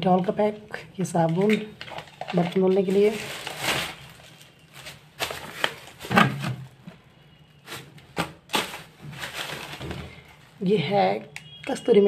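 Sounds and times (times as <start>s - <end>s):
plastic jars clicking and knocking: 1.1s - 2.9s
plastic bag rustling: 1.8s - 6.9s, 7.6s - 10.6s.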